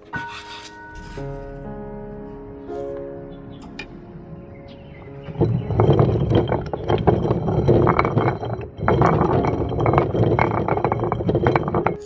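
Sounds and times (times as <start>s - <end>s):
millstone grinding grain: 5.2s - 12.0s.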